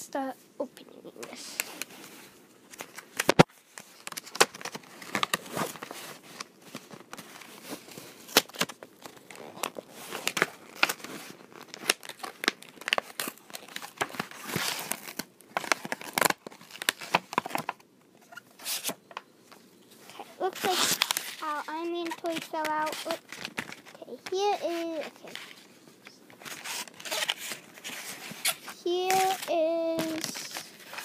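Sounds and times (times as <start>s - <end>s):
packaging tearing and crinkling: 2.7s - 19.0s, 20.4s - 24.0s, 26.3s - 31.0s.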